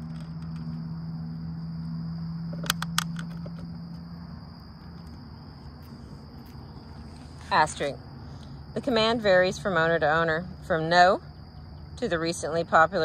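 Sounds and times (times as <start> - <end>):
insects trilling: 0.0 - 13.0
low steady hum: 0.0 - 13.0
sharp clicks: 2.6 - 3.4.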